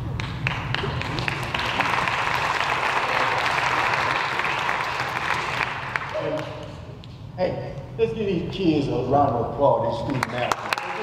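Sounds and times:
audience applauding: 0.2s - 6.8s, 10.2s - 11.0s.

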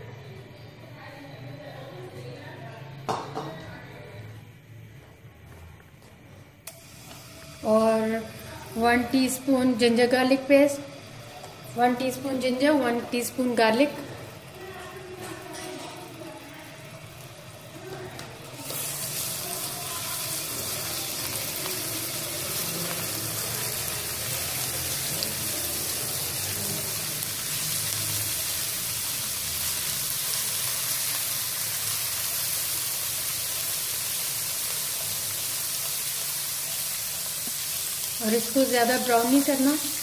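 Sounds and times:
paste sizzling in hot oil: 6.7s - 40.0s.

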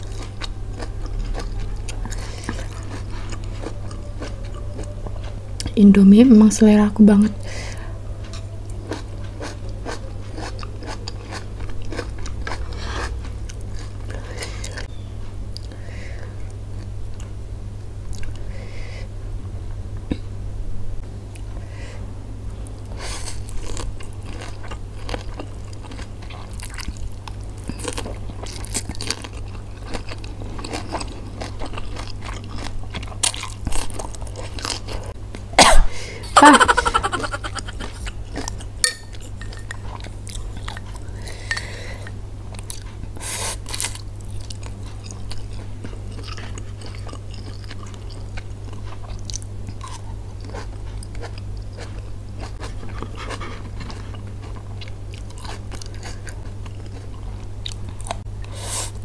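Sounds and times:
chewing noodles: 0.0s - 5.8s, 7.4s - 15.8s, 22.8s - 35.2s, 36.5s - 58.6s
person coughing: 35.6s - 38.0s.

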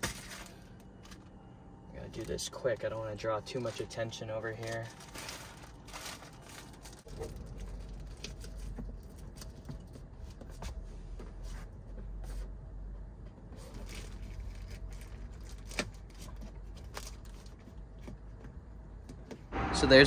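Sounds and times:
plastic bag crinkling: 3.5s - 9.2s
steady low rumble: 18.6s - 20.0s.

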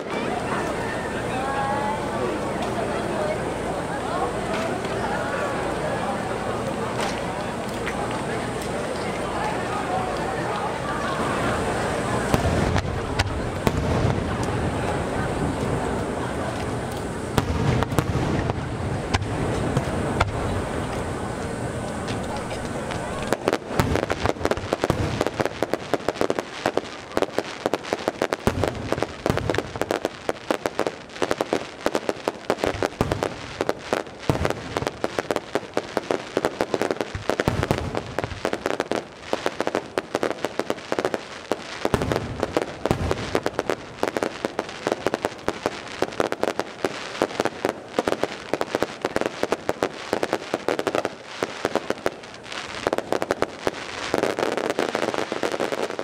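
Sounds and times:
fireworks crackling and popping: 0.0s - 56.0s
firework shells booming: 11.7s - 21.2s, 22.1s - 56.0s.

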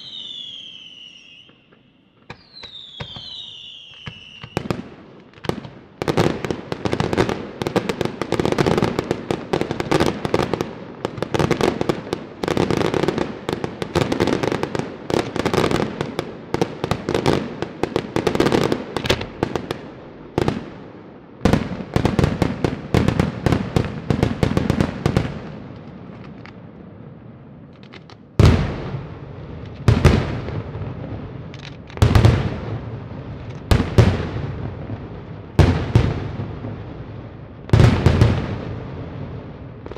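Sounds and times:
deep firework booms: 28.4s - 39.9s.

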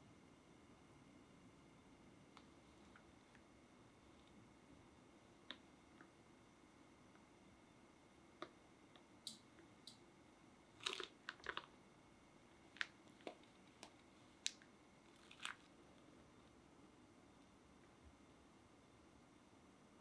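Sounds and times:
plastic piping bag crinkling: 10.7s - 11.8s, 12.5s - 15.8s.

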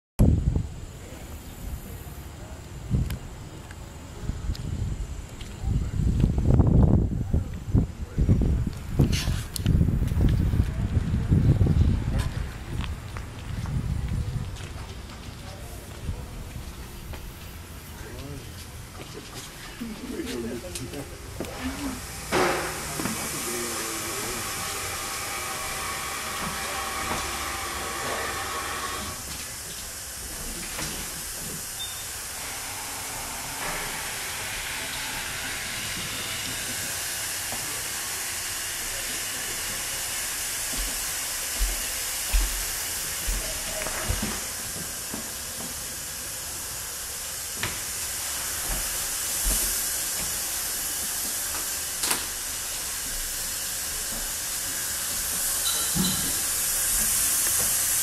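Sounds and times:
room tone hiss: 19.5s - 58.0s.

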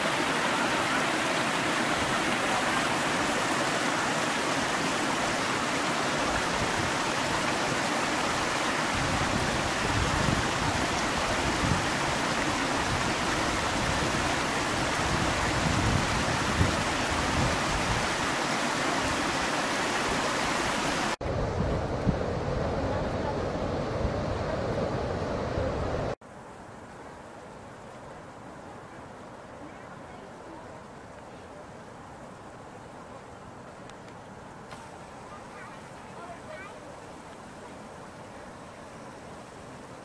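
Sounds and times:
stream running over rocks: 0.0s - 21.2s, 26.2s - 40.0s
wind rumbling on microphone: 6.2s - 18.3s, 21.2s - 26.2s.

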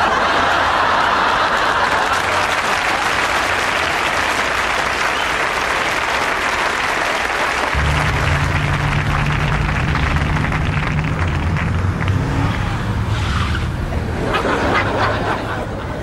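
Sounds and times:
audience laughing and clapping: 0.0s - 13.0s, 13.8s - 16.0s
low steady hum: 7.7s - 15.3s.

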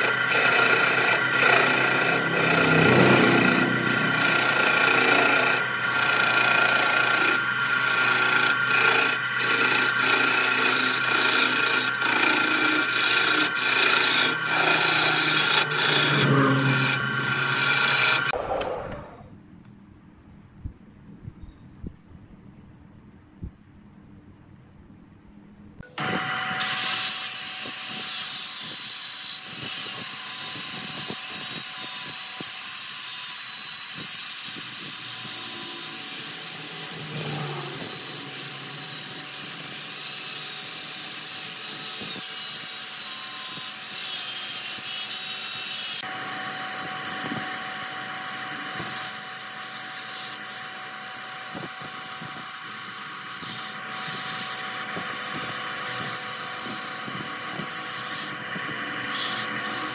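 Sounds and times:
sanding disc rasping on wood: 0.0s - 18.4s, 26.6s - 46.1s, 46.9s - 58.4s, 59.0s - 59.9s
steady machine tone: 13.6s - 19.1s.

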